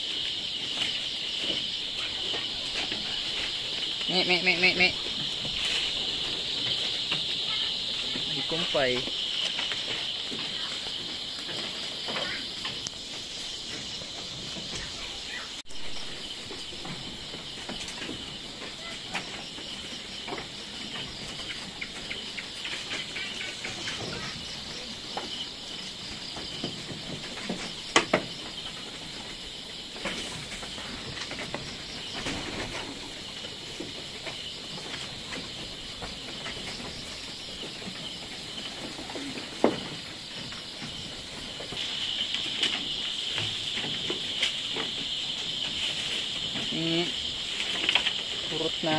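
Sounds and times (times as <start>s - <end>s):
insects chirring: 0.0s - 48.9s
goats knocking wooden rack: 26.2s - 29.3s.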